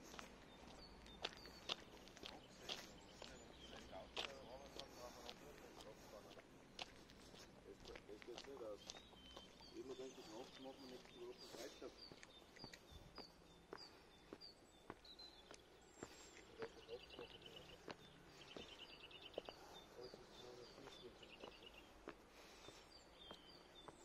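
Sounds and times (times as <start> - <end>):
faint footsteps walking: 0.0 - 24.0
small birds chirping and trilling: 0.0 - 24.0.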